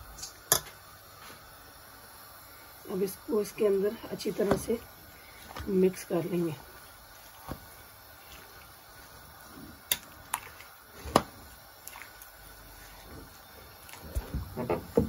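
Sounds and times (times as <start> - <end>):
spoon stirring in metal pan: 6.7 - 15.0.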